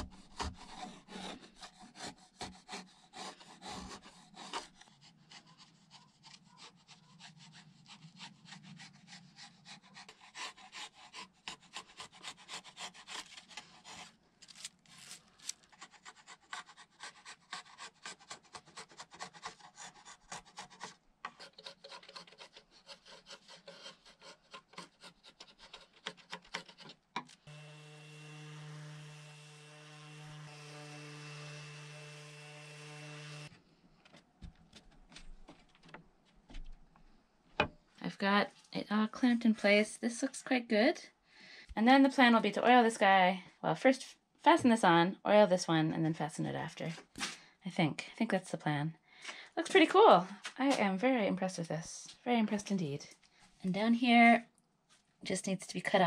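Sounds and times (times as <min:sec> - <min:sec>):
chisel scraping wood: 0:00.0 - 0:33.5
orbit sander humming: 0:27.5 - 0:33.5.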